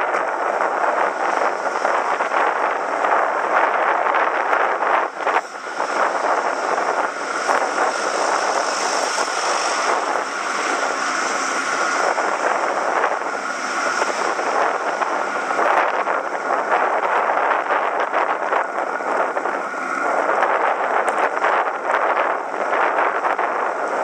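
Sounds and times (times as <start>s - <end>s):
road noise: 0.0s - 24.0s
wind rushing on microphone: 0.0s - 24.0s.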